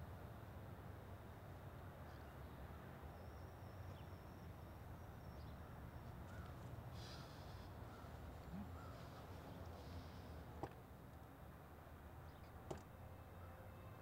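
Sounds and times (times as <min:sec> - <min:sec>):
low outdoor rumble: 0:00.0 - 0:14.0
faint bird calls: 0:05.4 - 0:10.4.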